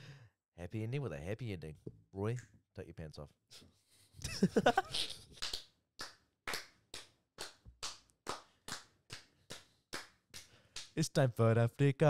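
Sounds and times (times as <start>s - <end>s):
men laughing: 4.2s - 5.3s
hands clapping rhythmically: 5.4s - 11.2s.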